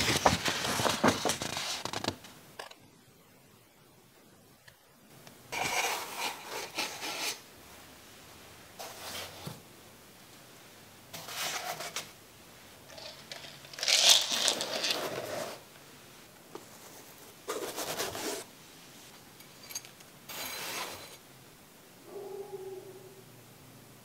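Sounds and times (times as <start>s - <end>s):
foam trays scraping and rustling: 5.5s - 7.4s, 8.8s - 9.6s, 11.1s - 12.2s, 13.0s - 15.7s, 16.6s - 18.5s, 20.3s - 21.2s.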